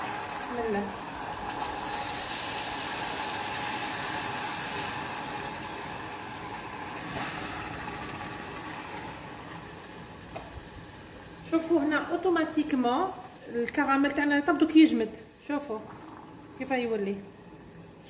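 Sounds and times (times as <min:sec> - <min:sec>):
caramel hissing and sizzling: 0:00.0 - 0:10.2.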